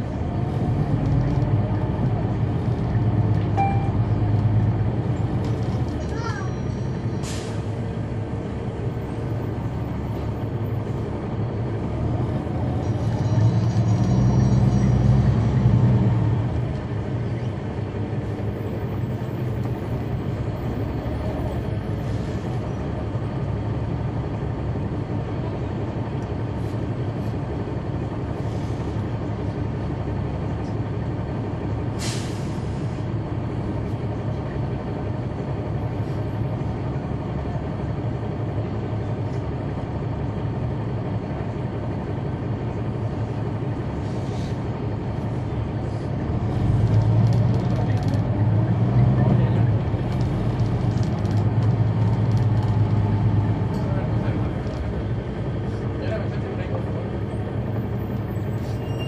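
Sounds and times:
bus diesel engine droning: 0.0s - 59.0s.

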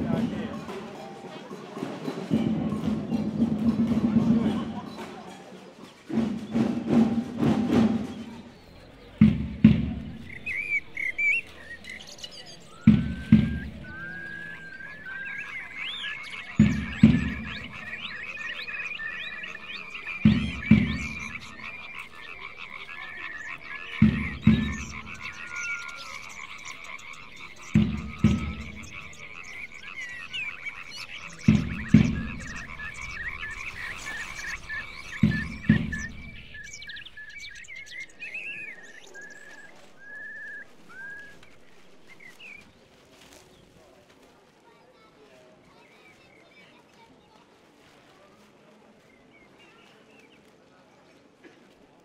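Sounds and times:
bass drum beat: 0.0s - 0.9s, 6.2s - 38.2s
rattling chatter: 0.0s - 52.0s
bird-like chirps and whistles: 7.4s - 43.6s.

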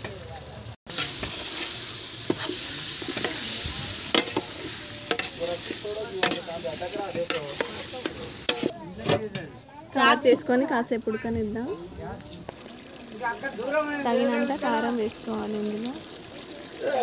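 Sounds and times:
chicken sizzling in hot oil: 0.0s - 9.2s, 12.2s - 17.0s
metal spatula scraping a pot: 0.9s - 9.2s.

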